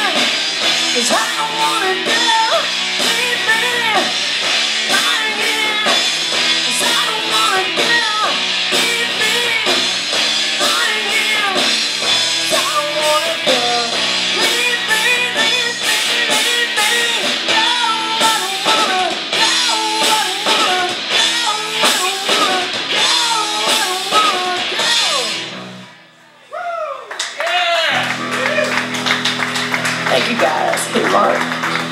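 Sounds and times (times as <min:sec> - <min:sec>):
woman singing lead vocal: 0:00.0 - 0:04.2, 0:04.8 - 0:11.8, 0:12.4 - 0:25.4
bass guitar: 0:00.0 - 0:26.0, 0:27.9 - 0:31.9
electric guitars: 0:00.0 - 0:26.3, 0:27.9 - 0:31.9.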